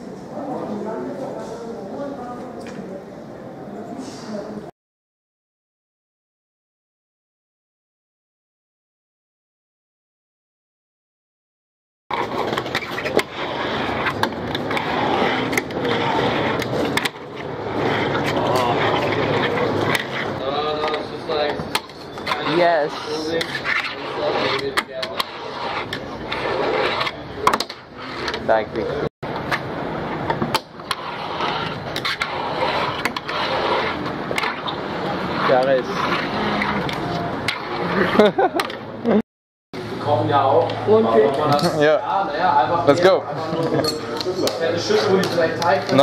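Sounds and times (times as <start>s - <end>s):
fingerboard rolling on wooden ramp: 12.1s - 28.5s, 29.4s - 38.9s.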